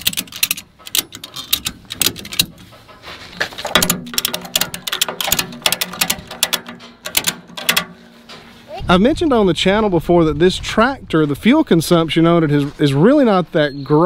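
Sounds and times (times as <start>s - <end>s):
ratchet strap clicking: 0.0s - 2.7s, 3.5s - 7.9s.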